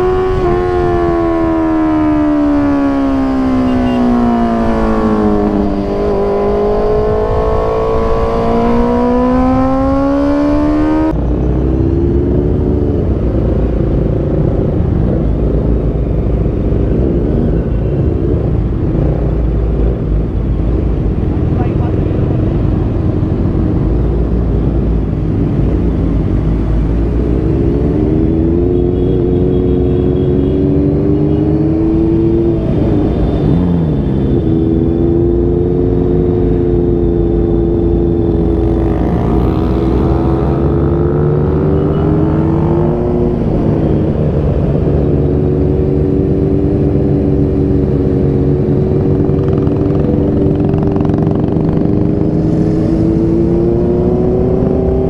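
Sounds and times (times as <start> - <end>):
motorcycle engine running: 48.6 - 52.4.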